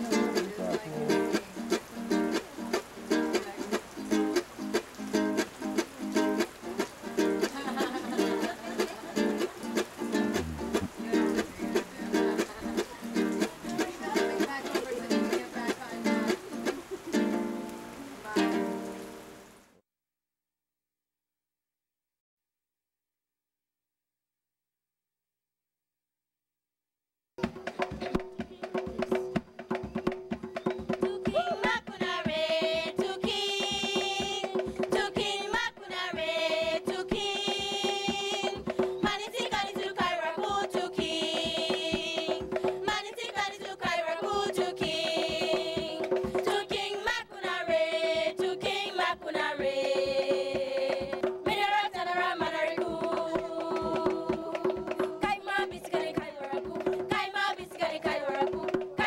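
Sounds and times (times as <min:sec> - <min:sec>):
hand percussion: 0:00.0 - 0:16.8, 0:27.4 - 0:59.0.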